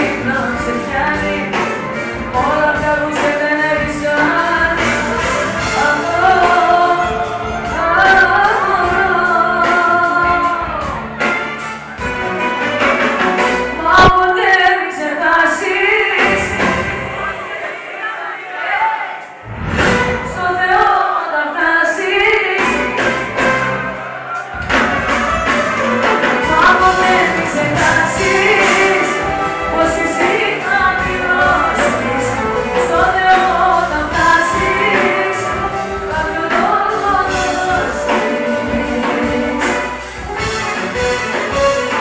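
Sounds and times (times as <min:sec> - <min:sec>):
woman singing pop song live: 0:00.0 - 0:11.2, 0:13.8 - 0:17.4, 0:20.3 - 0:23.3, 0:26.3 - 0:41.9
bass and beat: 0:00.0 - 0:12.4, 0:24.4 - 0:42.0
violin and keyboard band: 0:00.0 - 0:15.0, 0:22.0 - 0:42.0.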